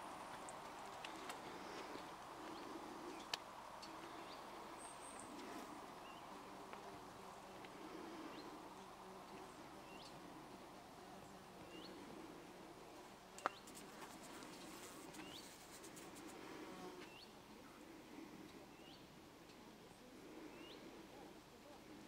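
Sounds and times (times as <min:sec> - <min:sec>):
low outdoor ambience: 0:00.0 - 0:22.0.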